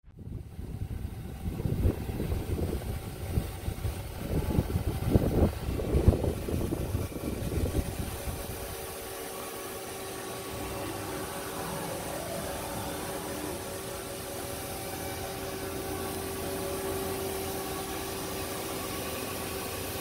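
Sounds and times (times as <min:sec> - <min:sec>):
idle machine hum: 0:00.1 - 0:20.0
low rumbling and buffeting: 0:00.1 - 0:20.0.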